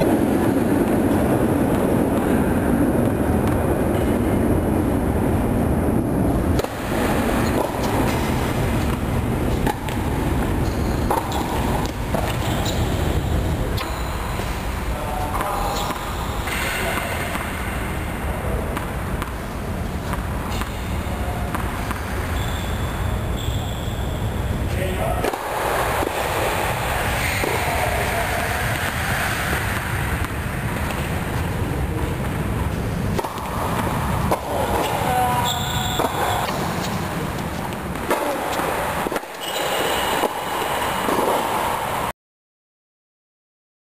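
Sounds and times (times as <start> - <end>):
low rumble in hall: 0.0 - 39.0
tennis ball hitting racket: 6.6 - 12.8.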